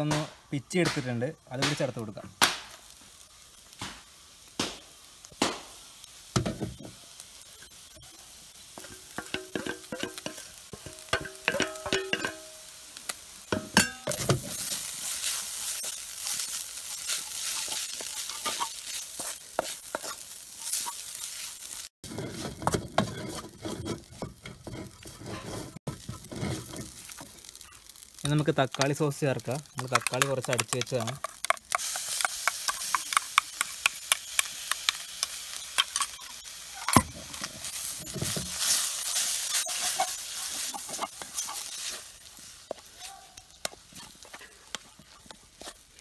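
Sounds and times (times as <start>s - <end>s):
food sizzling in pan: 0.0s - 46.0s
knocks ringing pan: 10.8s - 12.4s
wooden spatula scraping pan: 22.0s - 27.1s.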